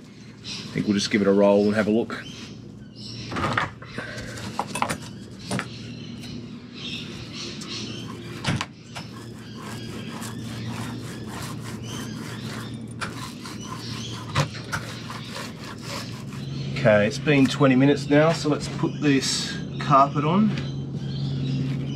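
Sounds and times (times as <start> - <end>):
steady low hum: 0.0 - 21.9
roller rasping over cloth: 7.8 - 16.7.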